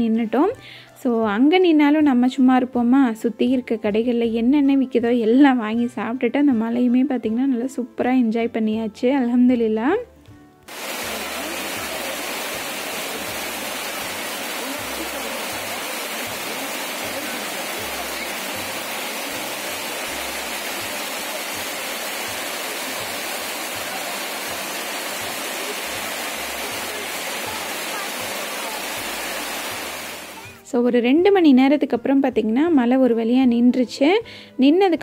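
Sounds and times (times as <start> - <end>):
heavy rain pouring: 10.7 - 30.6.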